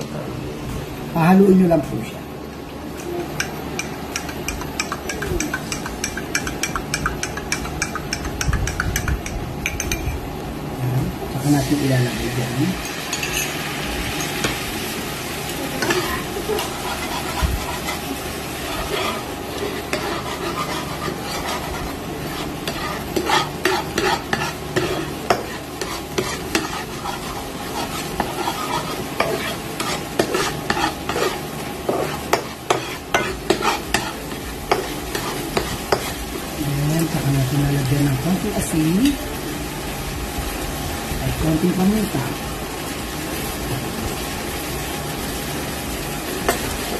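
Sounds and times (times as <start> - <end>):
sauce sizzling in frying pan: 3.3 - 46.9
metal spatula scraping and tapping pan: 3.4 - 10.2, 18.7 - 36.2.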